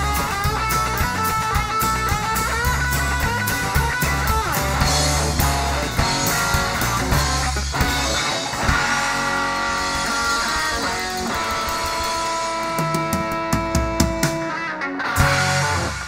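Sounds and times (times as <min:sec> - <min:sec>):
bass guitar: 0:00.0 - 0:16.0
drum kit: 0:00.0 - 0:16.0
guitars playing: 0:00.0 - 0:16.0.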